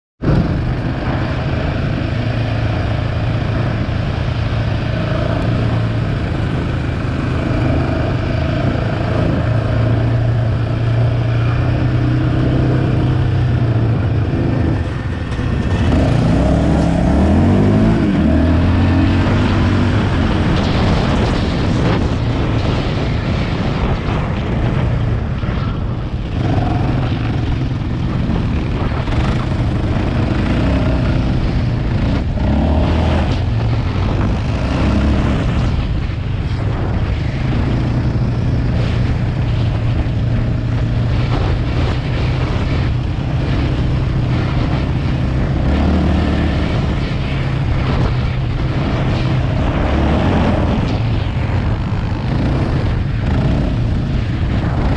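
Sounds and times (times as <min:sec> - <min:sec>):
quad bike engine revving: 0:00.2 - 0:22.0, 0:26.2 - 0:35.8, 0:40.0 - 0:47.0, 0:52.0 - 0:54.9.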